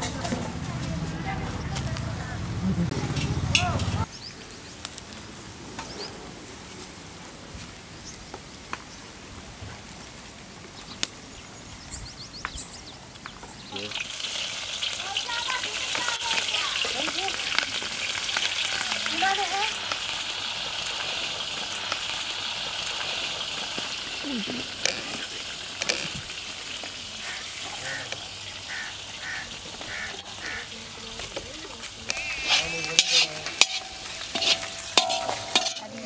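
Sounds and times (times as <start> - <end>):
chilies sizzling in hot oil: 13.6 - 36.0.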